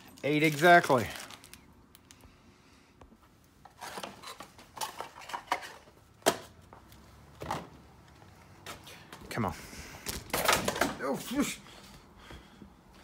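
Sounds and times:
packaging rustling: 0.0 - 2.2.

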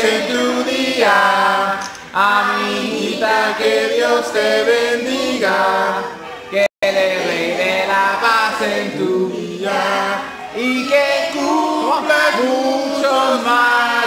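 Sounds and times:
group singing a capella: 0.0 - 14.0.

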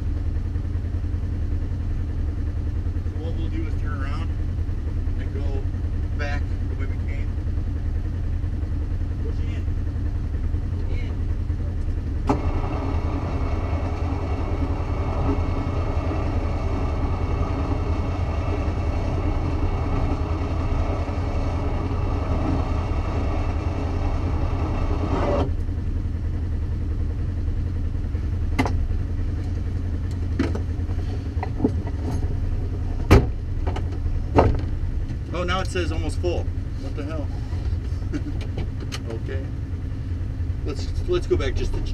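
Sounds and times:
vehicle engine idling: 0.0 - 41.9
high whirring: 11.8 - 25.7.

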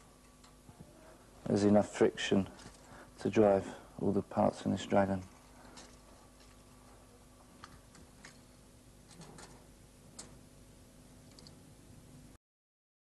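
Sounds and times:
faint steady hum: 0.0 - 12.4
mechanism clicking: 11.2 - 11.6.

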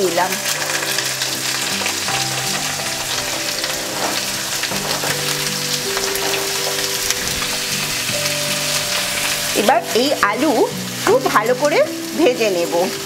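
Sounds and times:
potatoes sizzling in hot oil: 0.0 - 13.0.

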